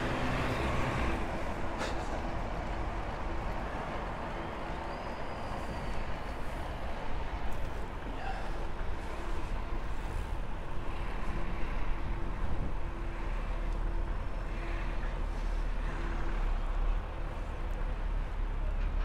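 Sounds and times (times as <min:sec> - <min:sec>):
road traffic noise: 0:00.0 - 0:19.0
wind rumbling on microphone: 0:09.6 - 0:13.2.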